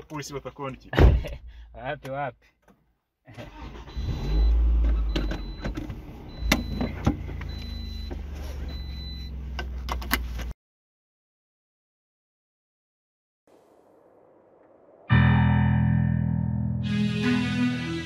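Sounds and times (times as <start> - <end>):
car engine starting and idling: 3.3 - 10.4.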